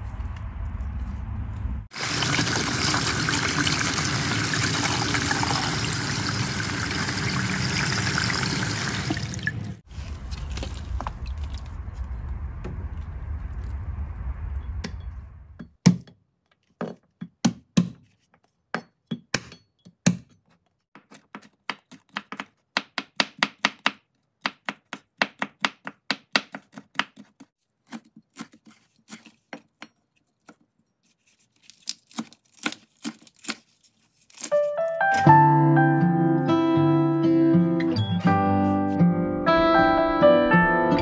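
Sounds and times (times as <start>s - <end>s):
water running: 1.9s - 11.7s.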